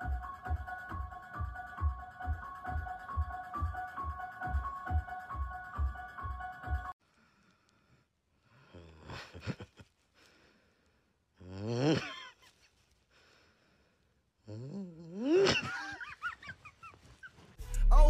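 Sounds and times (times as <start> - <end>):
man mock crying: 11.4 - 12.5, 14.5 - 16.2.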